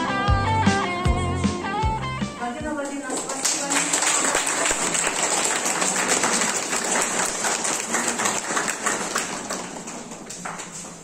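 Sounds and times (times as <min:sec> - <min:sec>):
audience clapping: 0:02.8 - 0:11.0.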